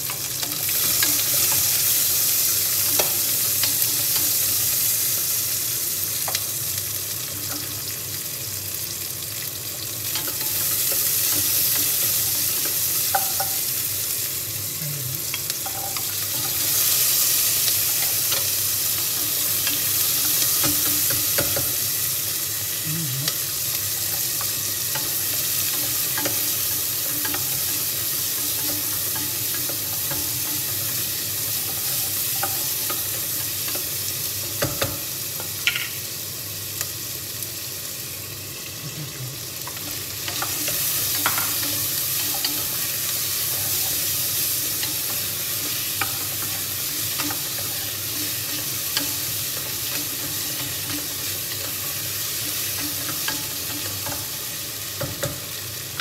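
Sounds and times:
vegetables sizzling in a saucepan: 0.0 - 56.0
spatula scraping and tapping pan: 10.2 - 13.6, 39.7 - 56.0.

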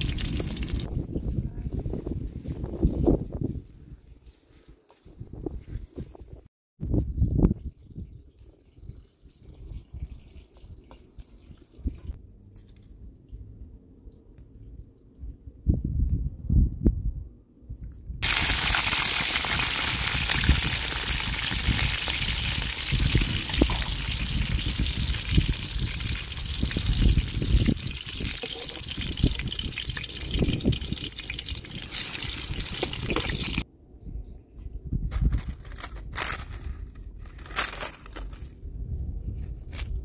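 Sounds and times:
eggplant sizzling in oil: 0.0 - 0.9, 18.2 - 33.6.

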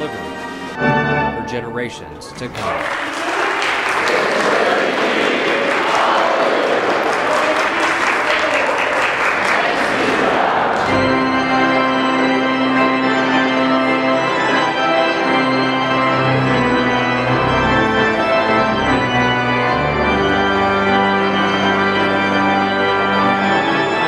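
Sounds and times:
pipe organ chords: 0.0 - 2.8, 3.4 - 24.0.

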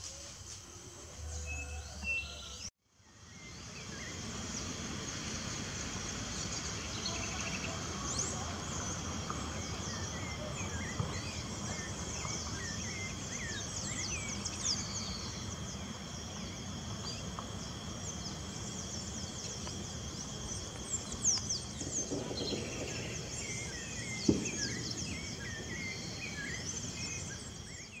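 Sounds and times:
insect drone: 0.0 - 28.0
small birds chirping: 1.7 - 28.0.

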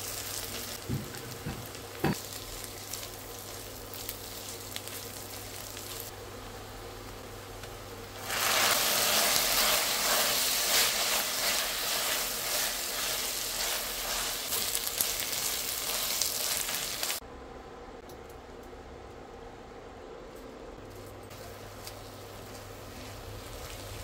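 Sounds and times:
onions sizzling in hot oil: 0.0 - 17.2, 21.3 - 24.0.

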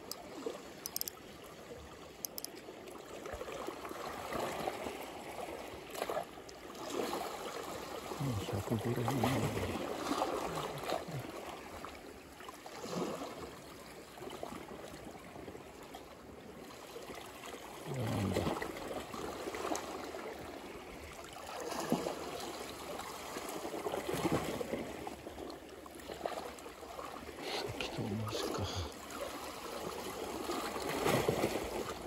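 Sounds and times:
waves lapping against rocks: 0.0 - 32.0.

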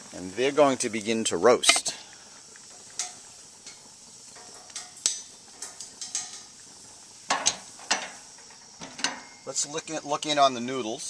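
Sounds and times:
faint hiss of roasting food: 0.0 - 11.0
metal utensils clinking on grill: 1.6 - 2.0, 2.7 - 6.6, 7.3 - 9.7
cookware clattering: 7.3 - 8.2, 8.8 - 9.5.

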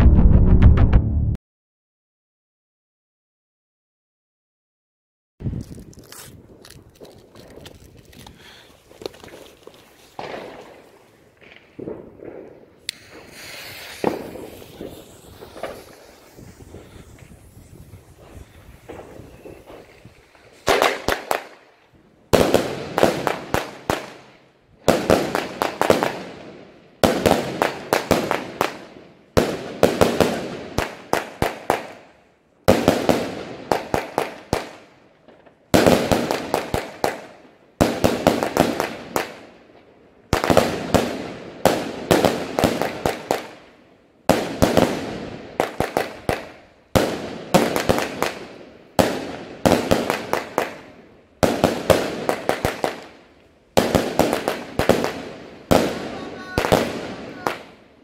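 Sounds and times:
firework bangs: 9.2 - 21.7, 22.3 - 32.1, 32.7 - 39.5, 40.3 - 43.6, 44.3 - 57.9.

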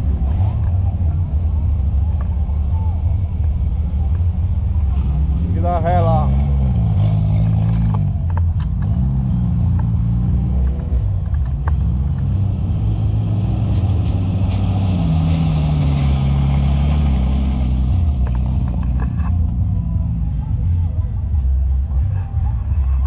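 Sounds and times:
off-road vehicle engine revving: 3.1 - 20.8.

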